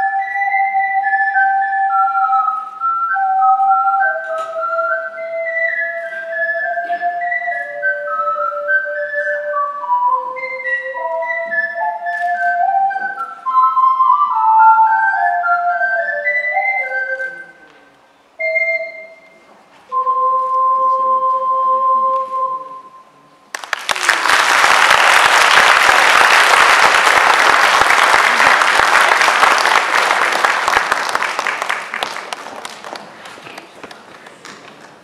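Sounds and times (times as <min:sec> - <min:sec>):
ocarina duet: 0:00.0 - 0:23.6
audience applause: 0:23.5 - 0:35.0.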